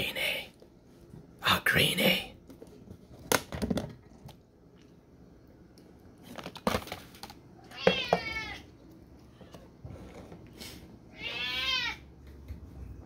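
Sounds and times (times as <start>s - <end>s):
plastic tub clicks and knocks: 3.2s - 4.0s
cat meowing: 7.7s - 8.7s, 11.1s - 12.0s.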